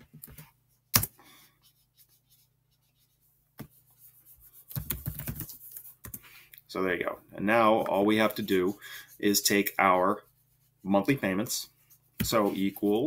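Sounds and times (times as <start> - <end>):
keyboard typing: 4.7 - 6.2.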